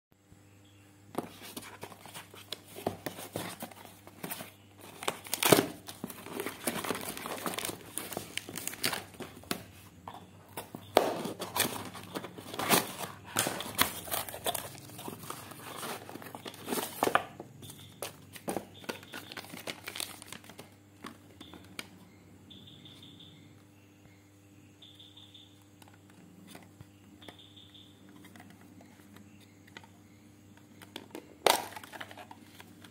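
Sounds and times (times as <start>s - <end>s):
paper envelope tearing and crinkling: 4.8s - 9.3s, 11.0s - 17.2s, 19.1s - 20.6s.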